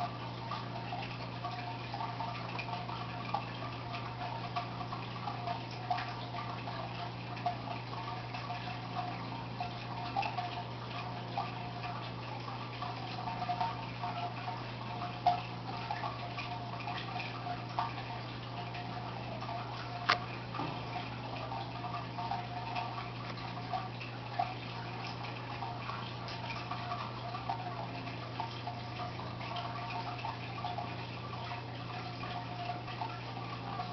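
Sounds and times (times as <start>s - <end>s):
aquarium pump humming: 0.0s - 33.9s
bubbling dripping water: 0.0s - 33.9s
small irregular clicks: 20.0s - 20.4s.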